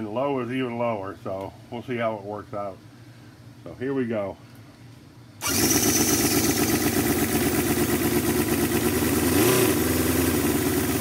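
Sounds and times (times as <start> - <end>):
model engine running and revving: 5.4 - 11.0.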